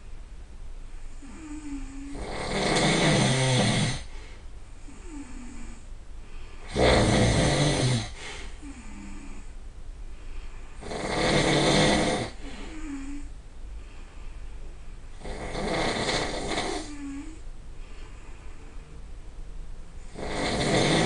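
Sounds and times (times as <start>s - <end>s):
person snoring loudly: 1.2s - 4.1s, 6.6s - 9.5s, 10.8s - 13.3s, 15.2s - 17.4s, 20.1s - 21.0s
soft pitched breath: 4.0s - 6.7s, 8.1s - 10.8s, 12.3s - 15.2s, 16.8s - 19.1s.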